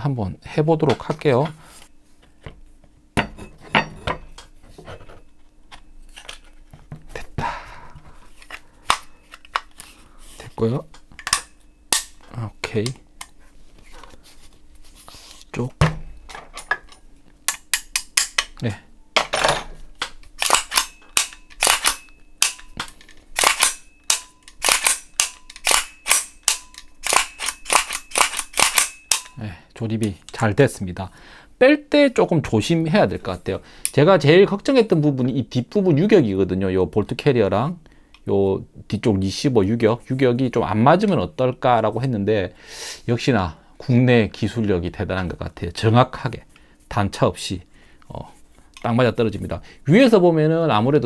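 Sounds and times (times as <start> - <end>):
sharp clicks and knocks of parts: 10.9 - 13.4, 15.8 - 18.6, 19.2 - 29.4.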